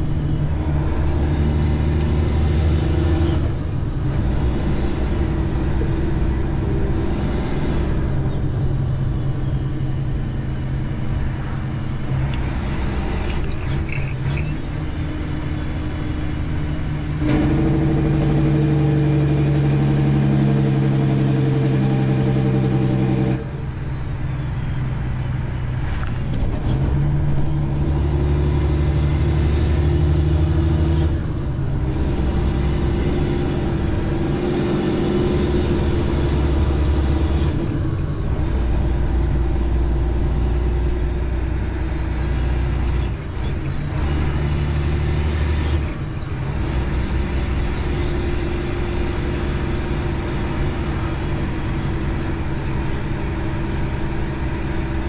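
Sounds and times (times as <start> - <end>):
truck diesel engine from cab: 0.0 - 55.0.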